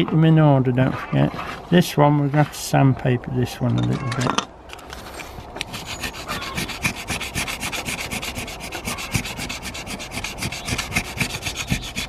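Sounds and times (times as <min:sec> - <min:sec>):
sandpaper scraping metal: 0:05.6 - 0:12.0.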